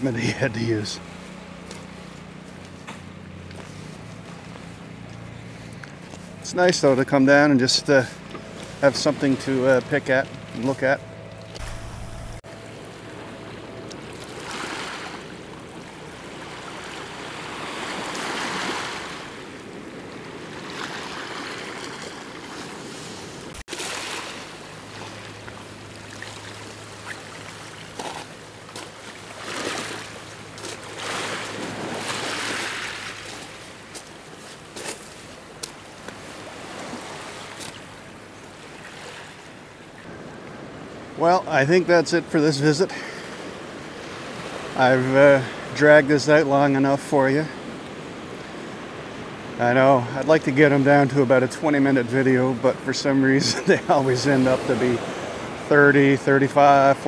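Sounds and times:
waves washing over pebbles: 14.0 - 37.9.

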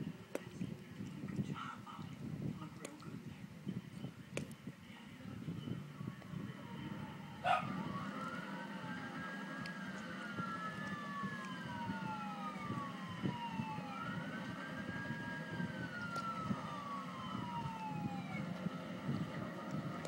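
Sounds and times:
steady low hum: 0.0 - 20.0
siren-like wail: 5.6 - 20.0.

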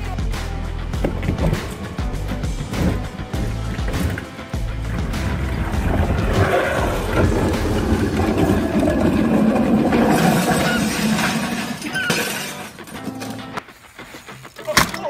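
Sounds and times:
breaking and clattering: 1.0 - 13.5
cardboard sled scraping on pavement: 1.0 - 14.3.

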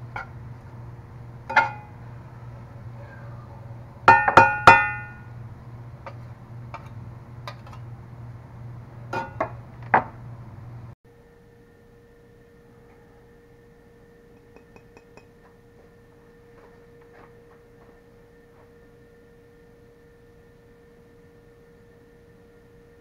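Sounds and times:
steady low hum: 0.0 - 23.0
metal spatula clanking on skillet: 1.5 - 1.9.

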